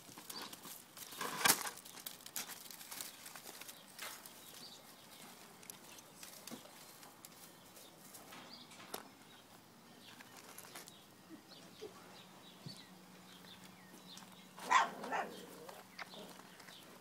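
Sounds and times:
dry crackles of straw: 0:00.0 - 0:11.2.

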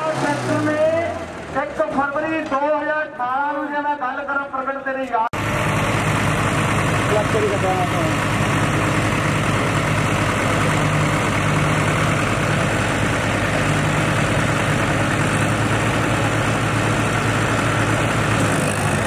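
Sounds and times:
tractor diesel engines idling: 0:00.0 - 0:19.0.

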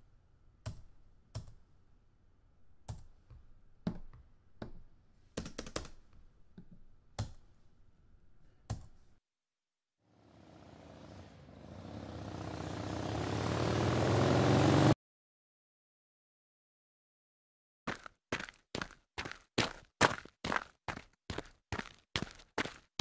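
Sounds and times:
vehicle engine sound effect: 0:10.1 - 0:15.0.

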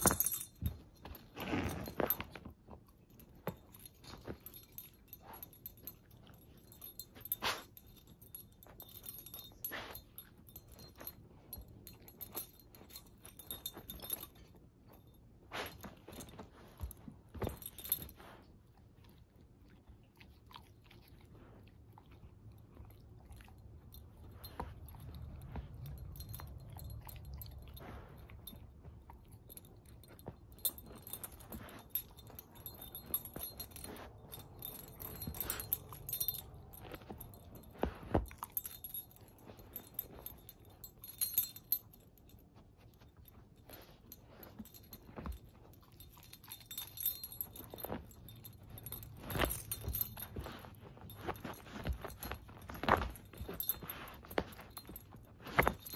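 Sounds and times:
metal tags jingling: 0:00.0 - 0:18.3, 0:23.9 - 0:55.9
dog chewing plush toy: 0:15.2 - 0:42.6, 0:43.4 - 0:55.9.

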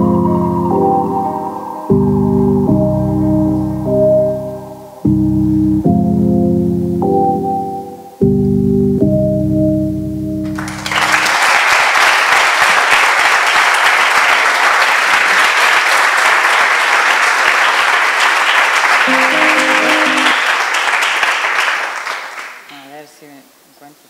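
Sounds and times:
film music held chords: 0:00.0 - 0:10.8, 0:19.1 - 0:20.5
large audience applauding: 0:10.4 - 0:22.7.

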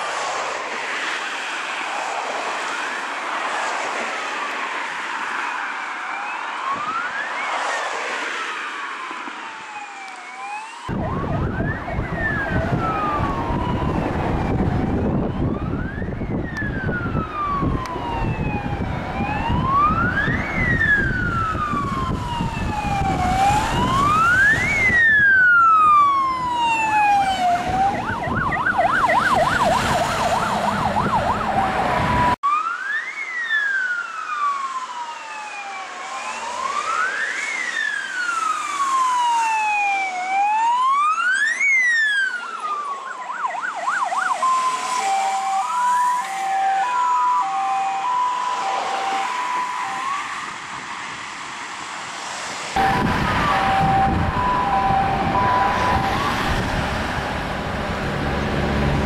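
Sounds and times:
fire engine sirens wailing: 0:00.0 - 0:59.0
siren fast yelp: 0:01.7 - 0:51.0, 0:52.8 - 0:57.2
low rumble of passing trucks: 0:45.8 - 0:59.0.

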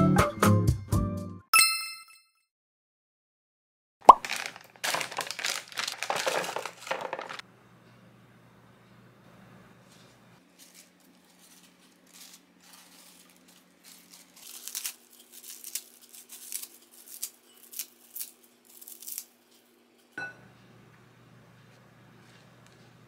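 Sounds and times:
lettuce leaves tearing: 0:04.1 - 0:07.4, 0:10.5 - 0:19.7
faint handling rustle: 0:09.9 - 0:19.8.

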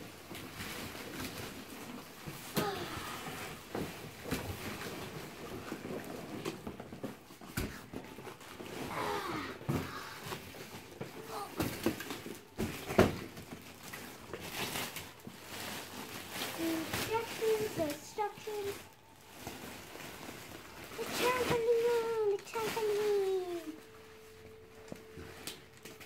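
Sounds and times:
child calling out: 0:08.9 - 0:09.7, 0:11.2 - 0:11.7
cardboard flaps rubbing and rustling: 0:09.6 - 0:24.3.

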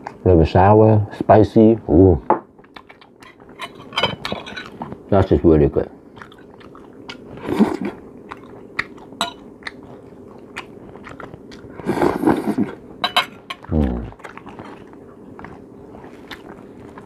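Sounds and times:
man chewing: 0:02.6 - 0:05.1, 0:06.0 - 0:17.0.

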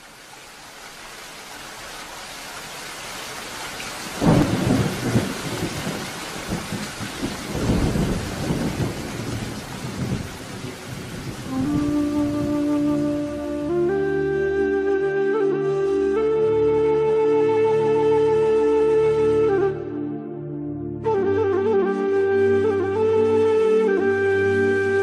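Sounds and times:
steady rain: 0:00.0 - 0:25.0
thunderclap and rolling thunder: 0:04.2 - 0:12.6.

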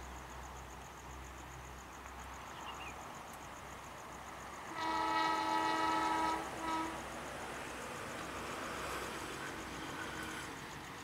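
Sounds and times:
short train horn toot: 0:04.7 - 0:07.0
train horn blast: 0:04.7 - 0:07.1.

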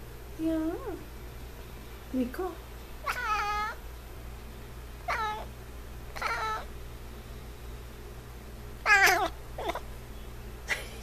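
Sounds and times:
cat meowing: 0:03.0 - 0:03.8, 0:05.1 - 0:05.5, 0:06.1 - 0:06.7, 0:08.8 - 0:09.8.

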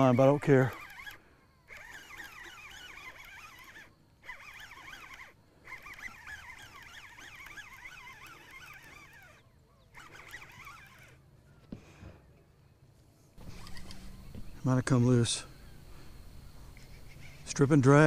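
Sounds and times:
faint birds chirping: 0:00.0 - 0:18.0.

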